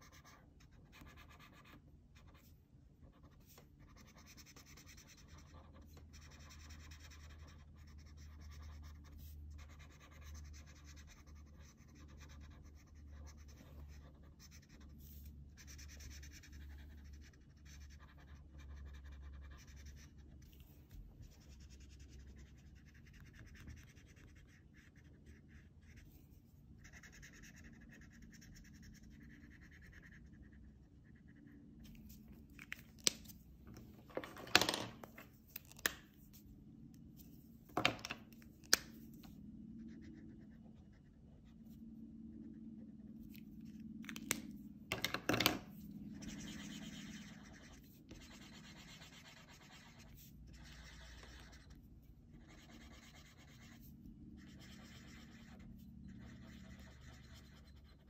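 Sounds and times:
marker scratching on paper: 0:00.0 - 0:32.8, 0:39.8 - 0:41.5, 0:45.4 - 0:58.0
markers clicking and knocking: 0:44.0 - 0:45.7.

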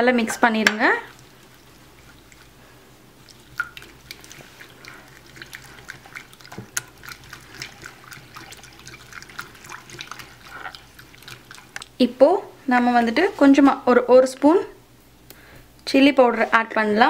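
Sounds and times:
whisk stirring eggs in glass bowl: 0:00.8 - 0:02.6, 0:03.2 - 0:12.1.

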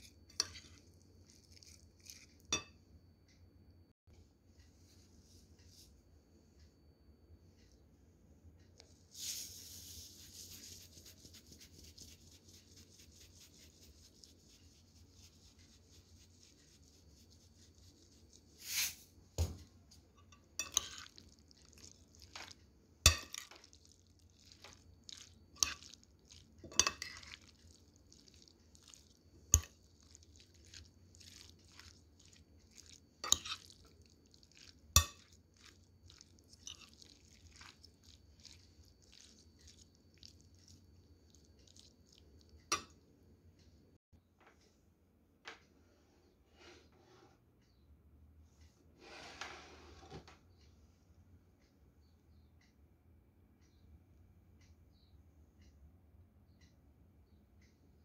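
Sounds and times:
spoon stirring wet coleslaw: 0:00.0 - 0:02.7, 0:09.2 - 0:19.0, 0:20.1 - 0:43.0.

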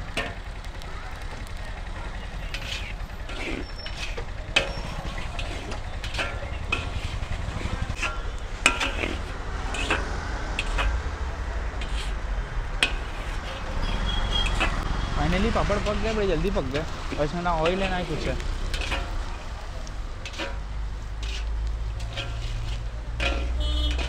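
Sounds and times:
low street rumble: 0:00.0 - 0:24.0
iron skimmer scraping a pan: 0:01.9 - 0:11.1, 0:11.7 - 0:24.0.

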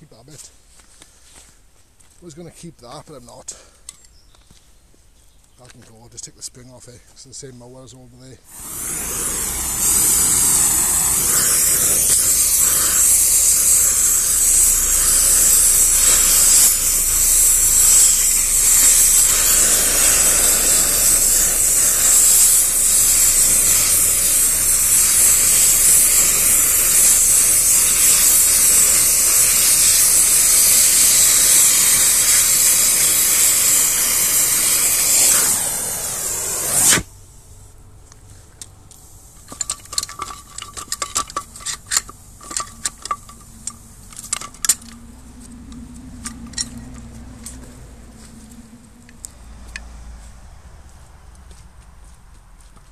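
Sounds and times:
cutting torch hissing: 0:08.4 - 0:37.2.

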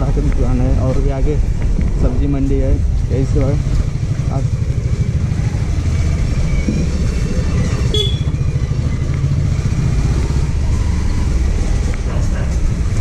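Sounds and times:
motorcycle engine running: 0:02.6 - 0:13.0.

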